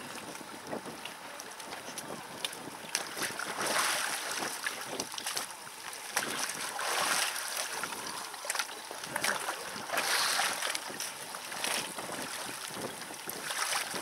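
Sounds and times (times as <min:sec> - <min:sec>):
water splashing and sloshing: 0:00.0 - 0:14.0.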